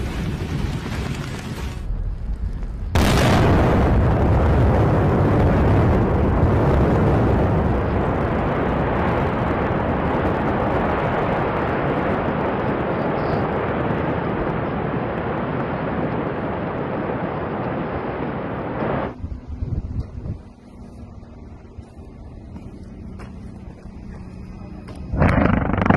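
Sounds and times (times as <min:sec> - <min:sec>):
mine blast rumble: 0:00.0 - 0:12.9, 0:25.0 - 0:25.9.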